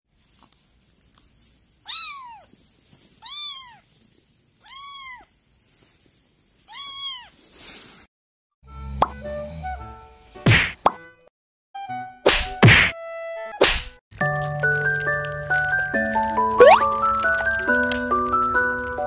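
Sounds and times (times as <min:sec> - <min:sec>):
kitten meowing: 0:01.8 - 0:02.5, 0:03.2 - 0:03.8, 0:04.6 - 0:05.3, 0:06.7 - 0:07.3
sharp knock: 0:10.5 - 0:10.8, 0:12.3 - 0:13.0.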